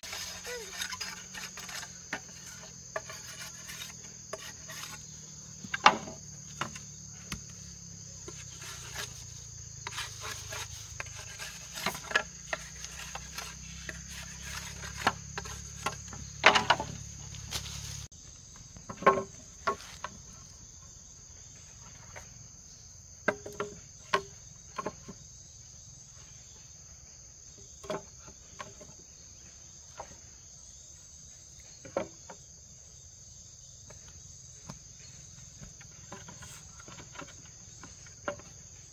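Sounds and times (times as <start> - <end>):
bamboo poles knocking: 0.0 - 17.7, 18.5 - 20.4, 23.2 - 25.2, 27.7 - 29.0, 31.8 - 32.4, 33.9 - 38.9
insect drone: 0.0 - 38.9.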